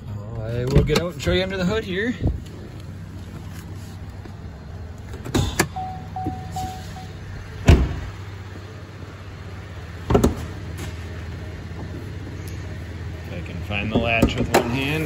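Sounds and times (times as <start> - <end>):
car engine idling: 0.0 - 15.0
door-open chime beeping: 5.7 - 7.2
car door thumping shut: 7.6 - 8.1, 10.1 - 10.5.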